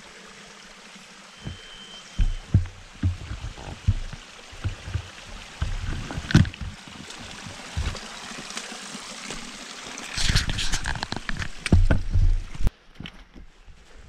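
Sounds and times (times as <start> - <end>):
water trickling: 0.0 - 12.7
footsteps on muddy trail: 1.4 - 9.5.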